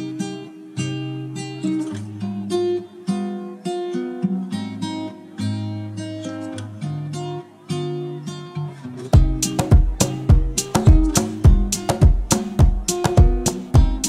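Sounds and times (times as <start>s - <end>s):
acoustic guitar picking: 0.0s - 14.0s.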